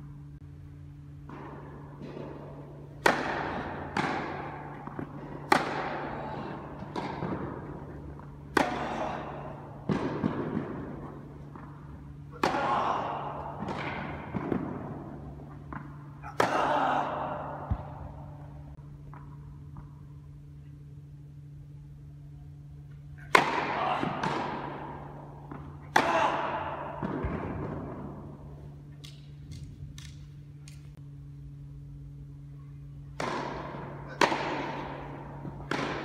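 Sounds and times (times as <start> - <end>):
steady low hum: 0.0 - 36.0
racket hitting tennis ball: 1.2 - 19.9, 23.2 - 28.4, 33.0 - 36.0.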